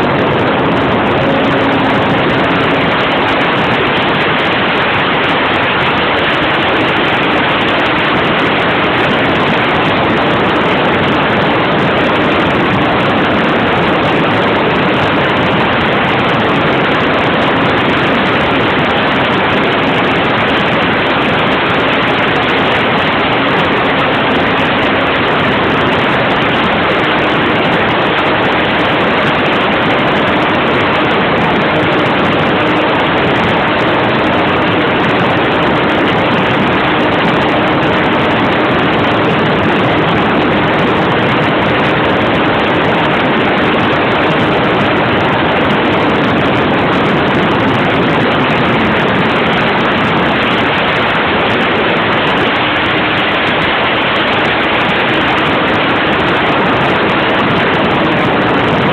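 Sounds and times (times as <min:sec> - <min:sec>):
faint engine tone: 0:00.0 - 0:05.7
loud rushing noise: 0:00.0 - 0:58.9.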